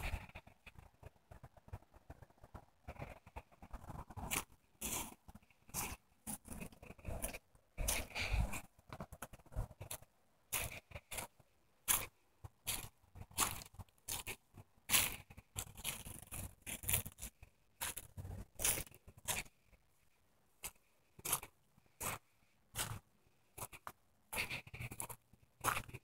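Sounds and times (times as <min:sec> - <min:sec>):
footsteps crunching dry leaves: 0:11.9 - 0:19.5.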